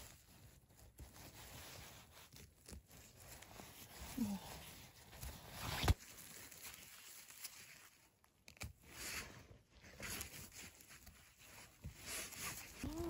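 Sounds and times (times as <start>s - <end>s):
rustling and tearing of moss: 0.1s - 9.0s.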